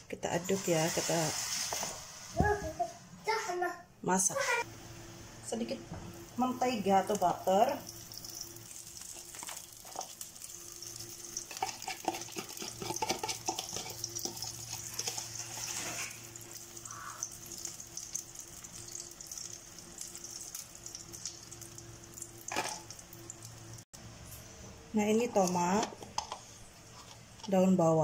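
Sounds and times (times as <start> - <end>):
egg sizzling in a frying pan: 6.1 - 23.9
spoon clicking and scraping: 7.9 - 15.8.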